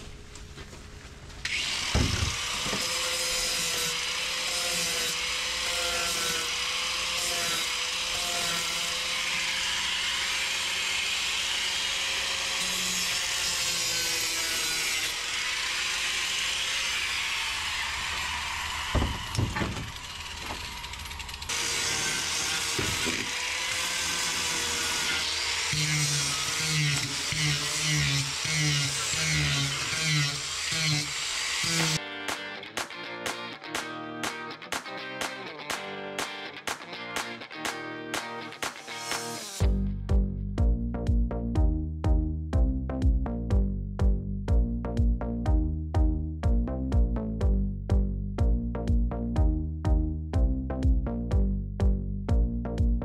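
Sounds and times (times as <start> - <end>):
electric power sander grinding: 1.5 - 39.8
knocks: 1.9 - 2.8, 18.9 - 20.6.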